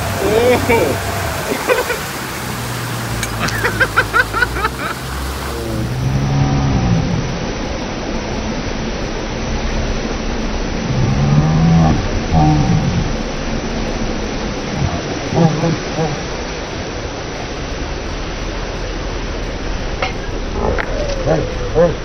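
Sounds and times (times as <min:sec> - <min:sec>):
boat engine low hum: 0:00.0 - 0:22.0
low drawn-out warbling: 0:00.0 - 0:22.0
water rushing and spraying: 0:00.0 - 0:22.0.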